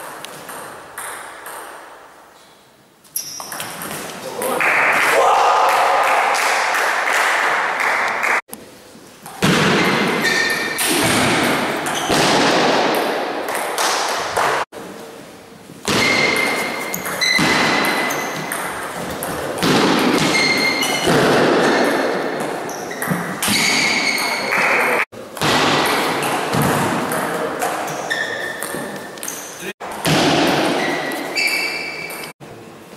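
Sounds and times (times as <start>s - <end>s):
shoe squeaks: 3.1s - 4.1s, 9.8s - 10.8s, 15.9s - 18.6s, 20.2s - 21.1s, 22.6s - 25.0s, 27.9s - 29.7s, 30.8s - 32.3s.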